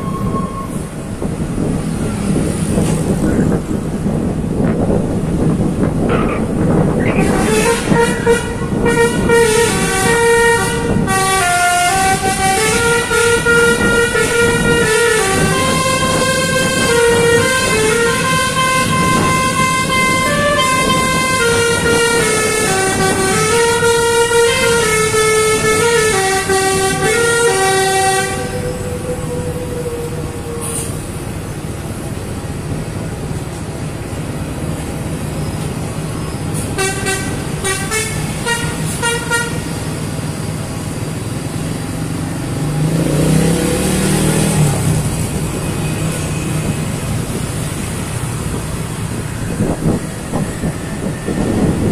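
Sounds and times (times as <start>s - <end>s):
bus engine running: 0.0s - 51.9s
short horn toots: 7.1s - 28.7s
musical air horn melody: 7.2s - 29.0s, 36.8s - 39.7s.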